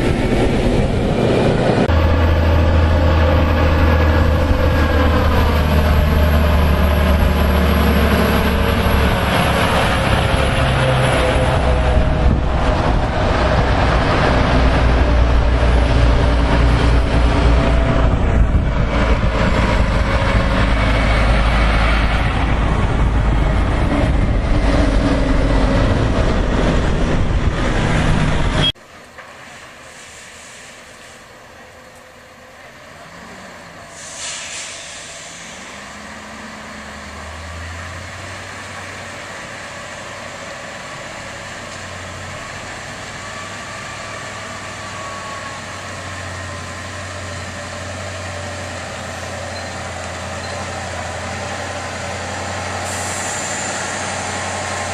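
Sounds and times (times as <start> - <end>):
brief hiss: 29.4 - 31.3, 33.9 - 35.8, 52.8 - 54.1.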